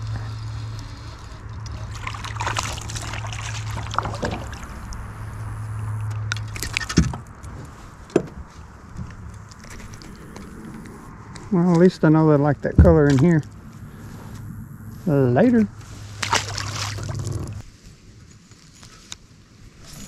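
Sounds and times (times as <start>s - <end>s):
water splashing: 1.4s - 7.0s, 16.0s - 17.6s.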